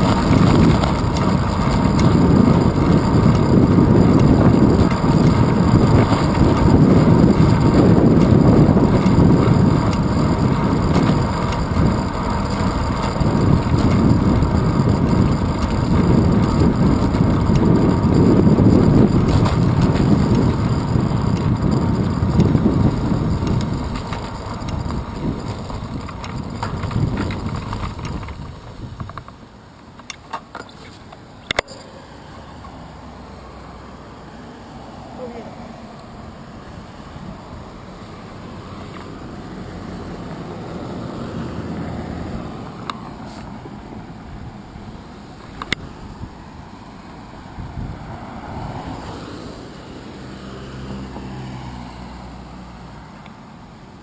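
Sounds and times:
wind buffeting: 0.0s - 29.5s, 36.1s - 49.3s
road rumble: 0.0s - 54.0s.

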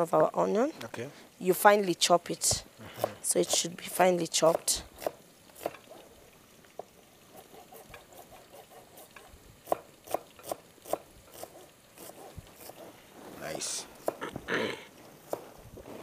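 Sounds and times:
knife chopping on cutting board: 7.4s - 12.8s, 14.0s - 14.3s.

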